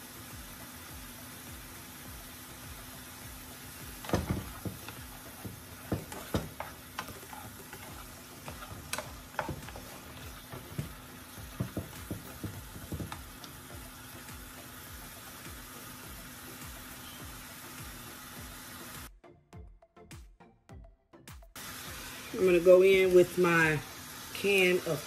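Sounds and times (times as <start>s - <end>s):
vegetables sizzling in oil: 0.0s - 19.1s, 21.6s - 25.0s
spatula scraping a pan: 4.0s - 13.2s.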